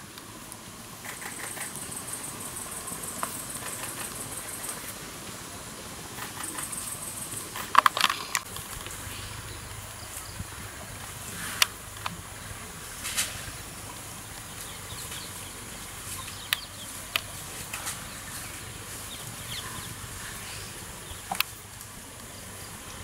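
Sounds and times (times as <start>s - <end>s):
sharp snaps: 1.0s - 1.9s
high insect buzz: 1.0s - 10.6s
faint bird chirps: 14.4s - 21.4s.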